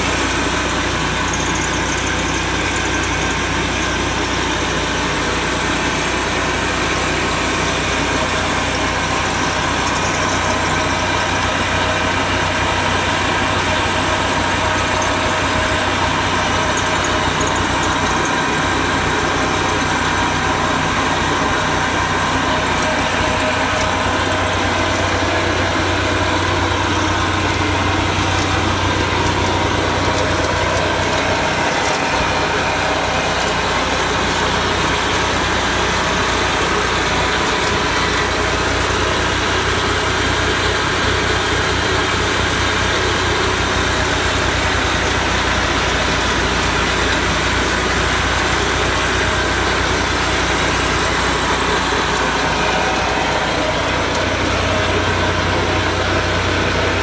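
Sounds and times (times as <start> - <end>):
mower engine idling: 0.0 - 57.0.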